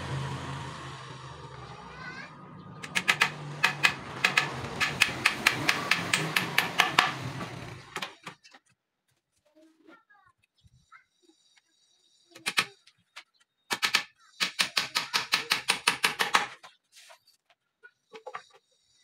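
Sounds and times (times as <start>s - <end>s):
hammer striking nails: 2.8s - 8.1s, 13.7s - 16.6s.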